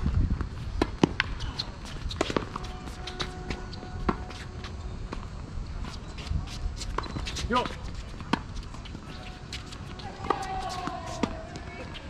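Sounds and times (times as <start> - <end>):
footsteps on court: 0.0 - 12.0
tennis ball bouncing: 0.8 - 5.3, 6.9 - 12.0.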